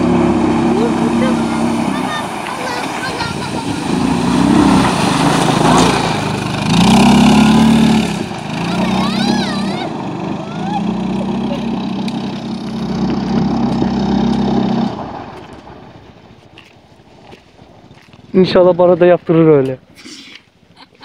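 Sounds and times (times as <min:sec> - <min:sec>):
atv engine under throttle: 0:00.0 - 0:15.7.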